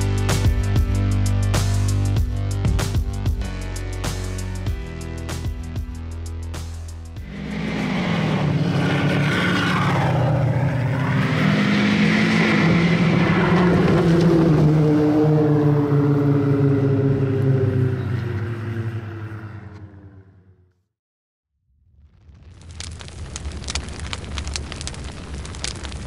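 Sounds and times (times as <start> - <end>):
diesel engine running hard: 7.2 - 20.6.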